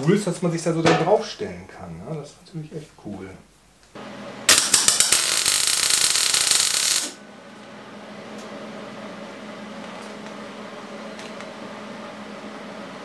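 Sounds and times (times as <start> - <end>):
arc welding crackle: 4.0 - 7.2.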